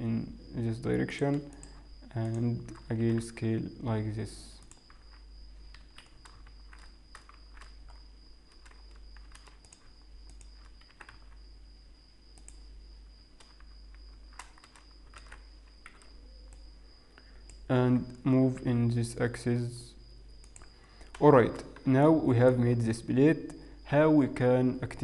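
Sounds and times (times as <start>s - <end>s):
faint high-pitched whine: 0.0s - 25.0s
keyboard and mouse clicking: 1.3s - 3.3s, 4.6s - 11.4s, 12.3s - 12.7s, 13.4s - 16.7s, 20.4s - 22.6s.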